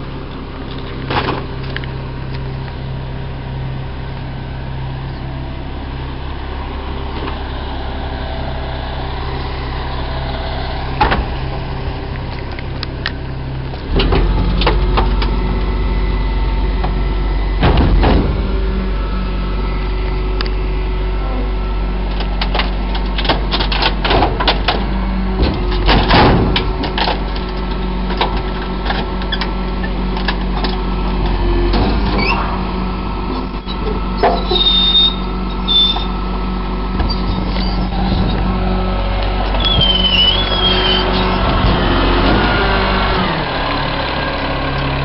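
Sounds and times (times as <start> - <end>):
truck engine and hydraulic hum: 0.0 - 45.0
short high squeaks: 32.2 - 32.4, 33.5 - 36.2, 37.0 - 38.4, 39.5 - 41.4.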